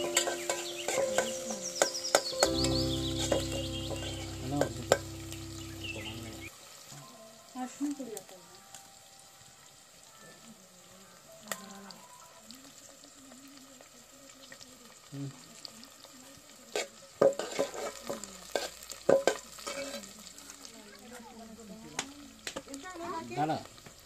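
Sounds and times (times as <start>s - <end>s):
metal spoon scraping a pot: 0.0s - 2.4s, 16.8s - 20.2s
onions sizzling in a pot: 0.0s - 24.0s.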